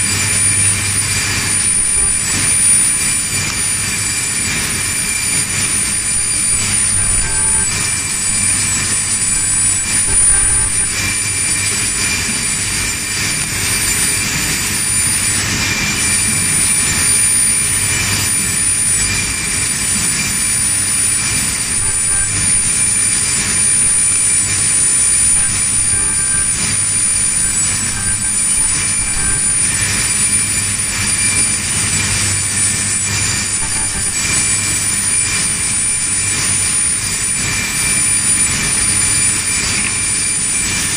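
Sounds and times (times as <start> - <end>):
machinery drone with whine: 0.0 - 40.9.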